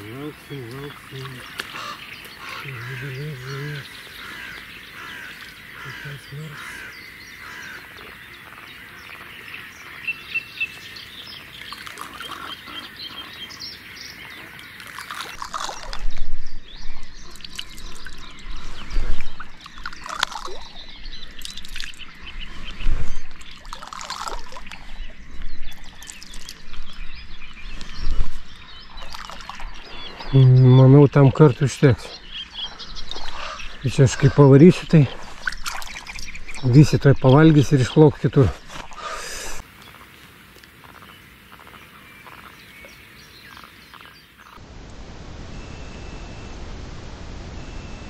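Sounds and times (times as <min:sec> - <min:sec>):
birds calling: 0:00.0 - 0:48.0
bait splashing into water: 0:14.8 - 0:16.2, 0:19.7 - 0:20.8, 0:23.4 - 0:24.9, 0:35.4 - 0:36.3.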